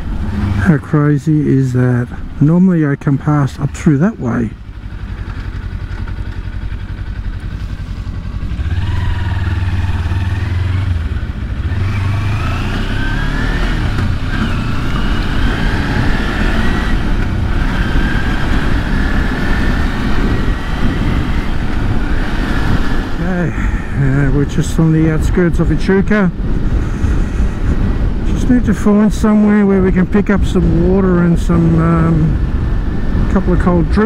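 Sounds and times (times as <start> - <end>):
motorcycle engine revving: 3.8 - 24.4
wind noise: 7.4 - 34.0.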